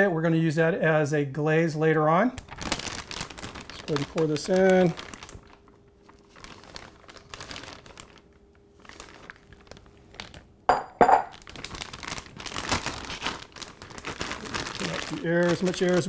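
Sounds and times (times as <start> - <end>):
sharp plastic crackles: 2.4 - 10.5, 11.3 - 16.0
plastic bag crinkling: 2.4 - 16.0.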